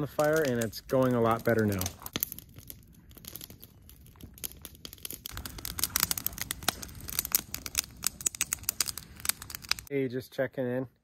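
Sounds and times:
campfire crackling and popping: 0.0s - 9.9s.

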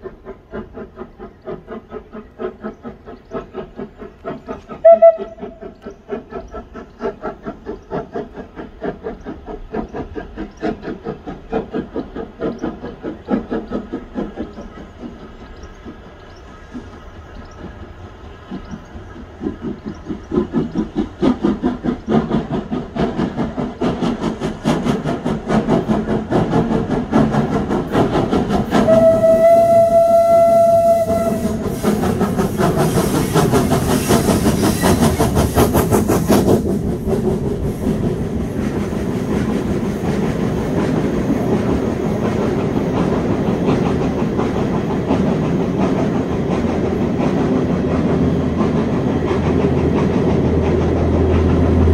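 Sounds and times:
steam locomotive exhaust beats: 0.0s - 51.9s
train wheels rumbling on rail: 0.0s - 51.9s
steam whistle blast: 4.8s - 5.6s, 28.8s - 32.0s.

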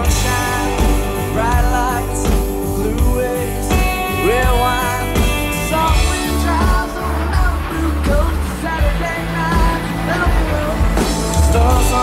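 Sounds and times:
drums: 0.0s - 12.0s
electric guitars: 0.0s - 12.0s.

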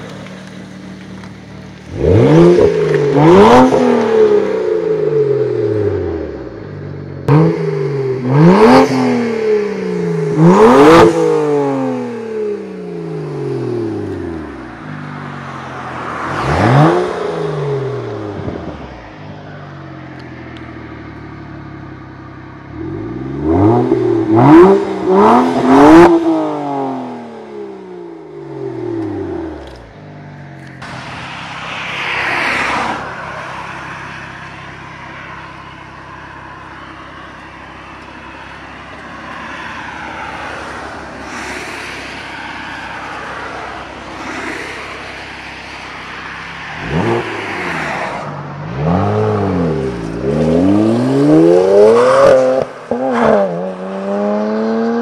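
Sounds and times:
car engine idling and revving: 0.0s - 55.0s.

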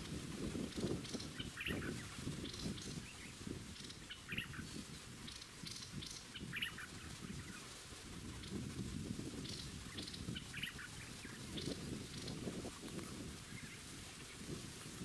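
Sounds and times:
bulbuls chirping: 0.8s - 8.6s, 9.4s - 12.4s.

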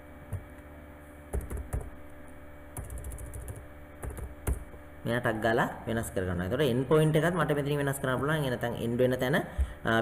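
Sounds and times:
faint steady hum: 0.0s - 10.0s
keyboard typing: 1.3s - 2.0s, 2.8s - 4.6s.

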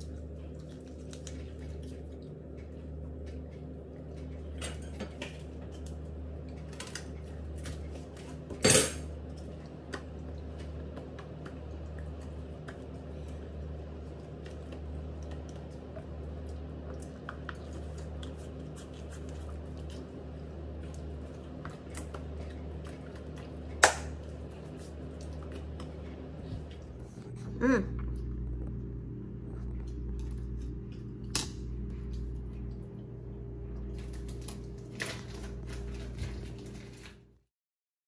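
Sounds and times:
steady low hum: 0.0s - 37.4s.

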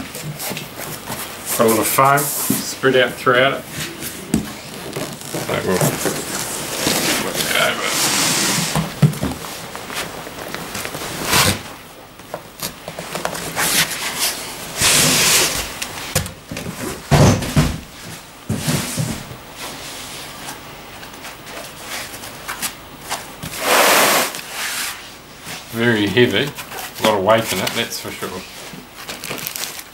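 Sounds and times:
foam and cardboard scraping: 3.6s - 11.8s, 12.6s - 15.8s, 23.5s - 29.7s.

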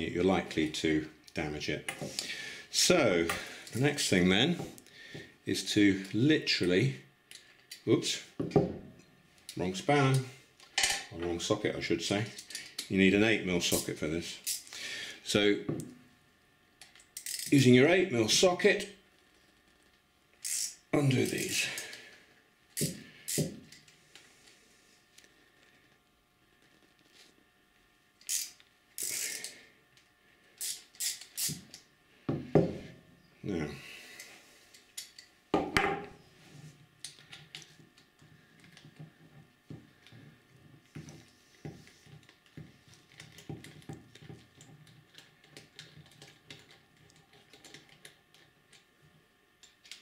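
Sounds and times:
socket ratchet clicking: 20.4s - 20.8s, 28.2s - 29.5s, 30.6s - 31.8s.

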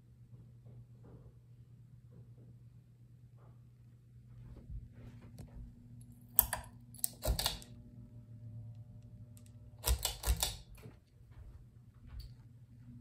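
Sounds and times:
low steady hum: 0.0s - 13.0s
pull-chain switch clicks: 6.4s - 7.8s, 9.4s - 10.8s.

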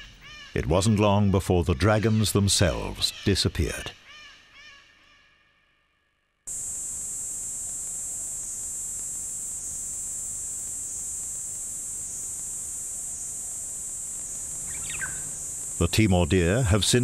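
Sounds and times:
insect chorus buzzing: 6.5s - 17.0s.

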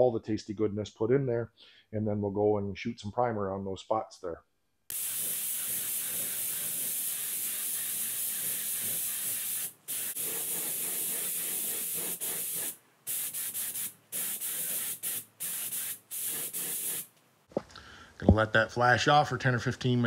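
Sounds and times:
spray gun hissing: 4.9s - 17.1s.

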